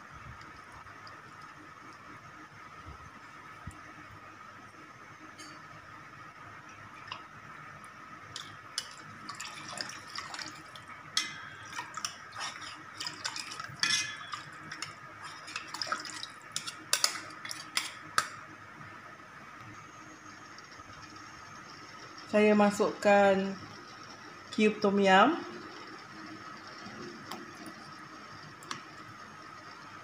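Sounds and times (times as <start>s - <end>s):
water splashing in a pot: 8.3s - 18.4s.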